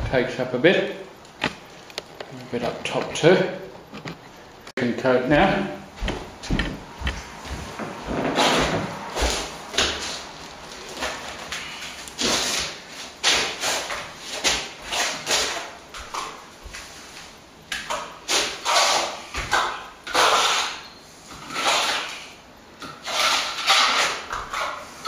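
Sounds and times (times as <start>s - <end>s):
trowel scraping wet plaster: 10.8s - 16.4s, 17.9s - 25.0s.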